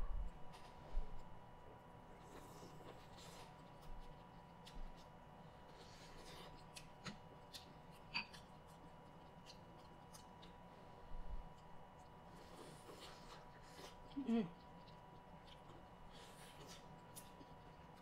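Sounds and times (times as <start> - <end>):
chewing corn on the cob: 0.5 - 18.0.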